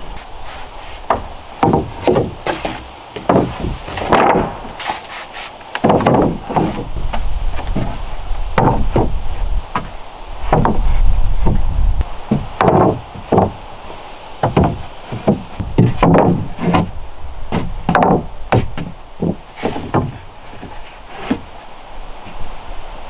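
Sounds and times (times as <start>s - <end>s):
board sliding rumble: 0.0s - 22.7s
wooden planks knocking: 0.5s - 11.7s, 12.3s - 13.6s, 14.4s - 21.5s.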